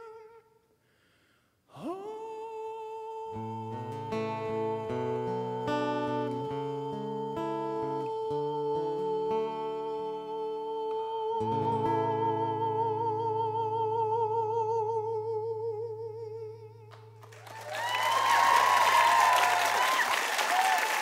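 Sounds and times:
man singing high note: 0:00.0 - 0:00.6, 0:01.7 - 0:16.9
audience applause and cheering: 0:17.2 - 0:21.0.

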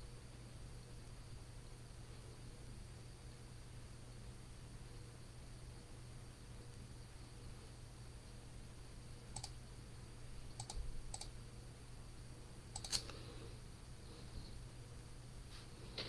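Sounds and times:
steady low hum: 0:00.0 - 0:16.0
computer clicks: 0:09.3 - 0:09.6, 0:10.5 - 0:11.4, 0:12.7 - 0:13.2.

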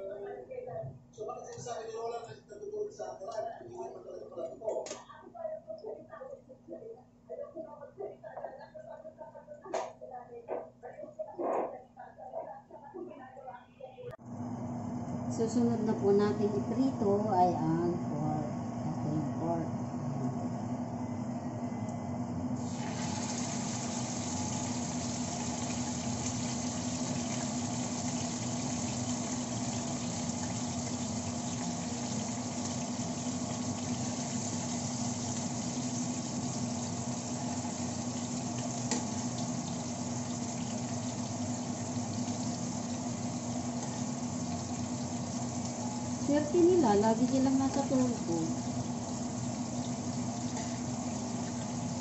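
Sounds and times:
steady low hum: 0:14.1 - 0:52.0
food sizzling in hot oil: 0:22.6 - 0:52.0.

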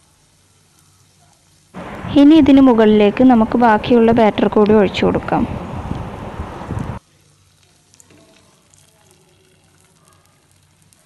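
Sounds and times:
batter sizzling in a pan: 0:00.0 - 0:01.8, 0:07.0 - 0:11.0
batter being poured: 0:07.0 - 0:11.0.

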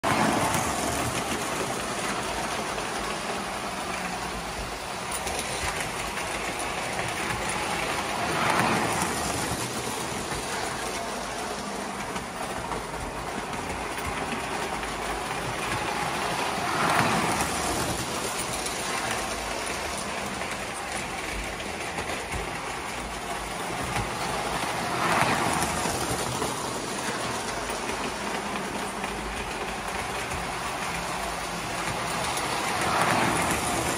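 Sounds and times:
toy train wheels and motor rattling: 0:00.0 - 0:33.9.

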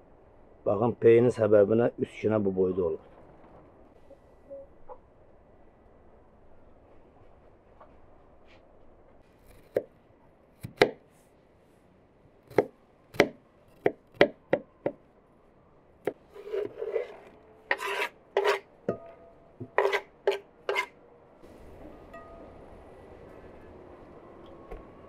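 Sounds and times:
knife chopping on wooden board: 0:10.6 - 0:11.0, 0:12.5 - 0:15.0
knife scraping a board: 0:16.1 - 0:18.7, 0:19.6 - 0:21.0
metallic ring of pan: 0:22.1 - 0:22.6.

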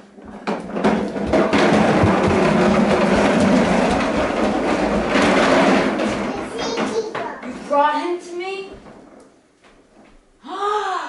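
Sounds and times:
toy cart wheels rattling: 0:00.4 - 0:07.7.

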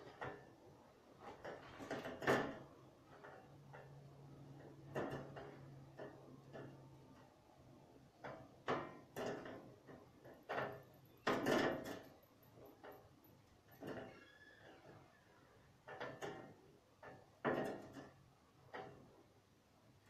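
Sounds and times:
wooden knocks and clunks: 0:15.9 - 0:19.0.

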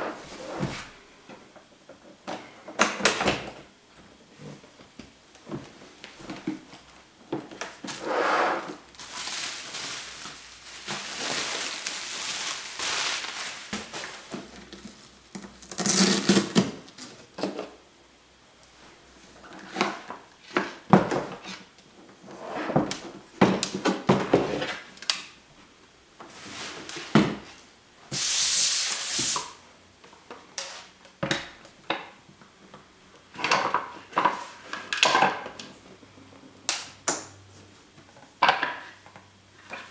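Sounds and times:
rubbing and rustling: 0:07.7 - 0:16.5.

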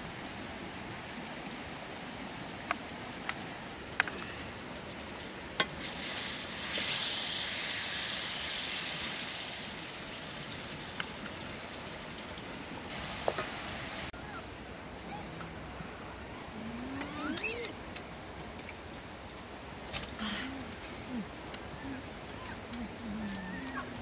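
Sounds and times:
food sizzling in pan: 0:05.7 - 0:14.1.

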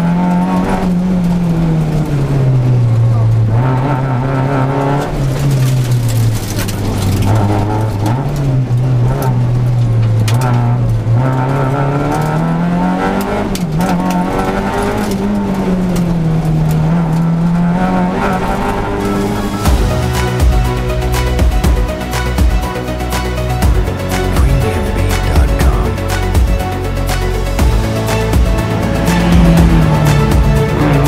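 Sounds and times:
rally car engine from inside cabin: 0:00.0 - 0:19.8, 0:27.6 - 0:31.0.

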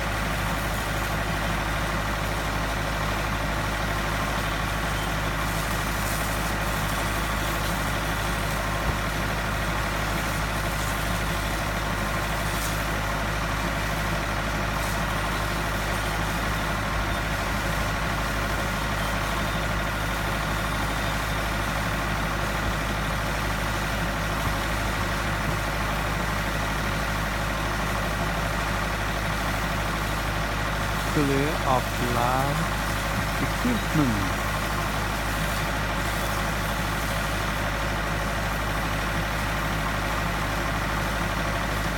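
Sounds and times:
pump engine droning: 0:00.0 - 0:41.9
constant hiss: 0:30.9 - 0:36.8.

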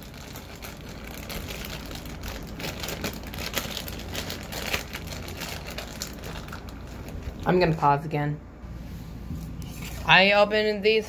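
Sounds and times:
packaging crinkling and rustling: 0:00.0 - 0:07.8.

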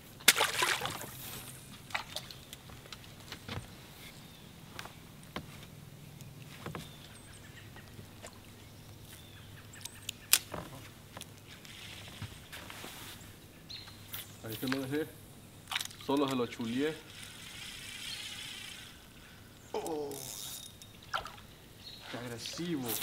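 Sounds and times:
fishing reel and lure clicks: 0:19.8 - 0:21.0.

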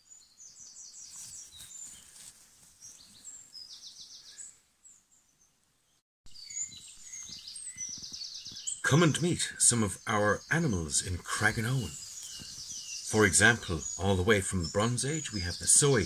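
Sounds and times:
songbirds trilling and chirping: 0:00.0 - 0:16.0
faint low rustle: 0:01.0 - 0:03.7, 0:11.8 - 0:13.5.

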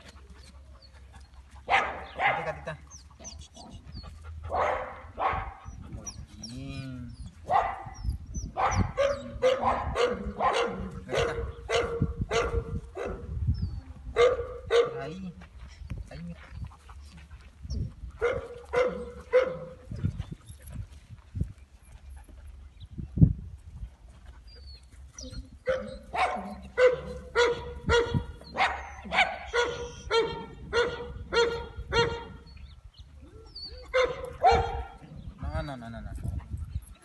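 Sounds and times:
dog barking: 0:01.7 - 0:02.6, 0:04.5 - 0:05.6, 0:07.5 - 0:08.0, 0:08.6 - 0:13.3, 0:14.2 - 0:15.1, 0:18.2 - 0:19.8, 0:25.7 - 0:32.4, 0:33.9 - 0:35.0.

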